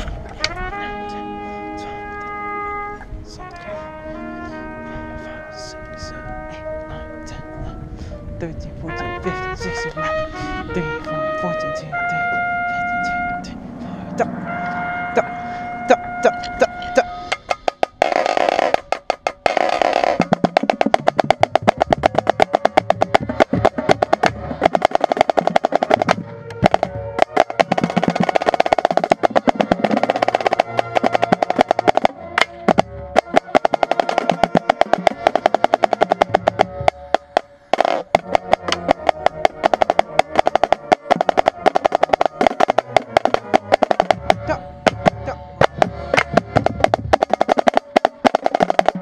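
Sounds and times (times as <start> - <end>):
snare drum strokes and rolls: 17.3 - 49.0.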